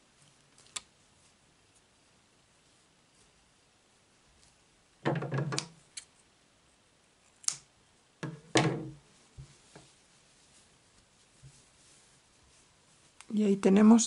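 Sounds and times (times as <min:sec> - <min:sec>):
thumping handling noises: 0:08.2 - 0:09.9.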